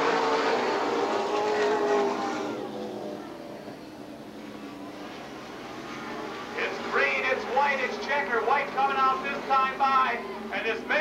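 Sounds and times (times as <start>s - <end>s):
race car engines roaring: 0.0s - 11.0s.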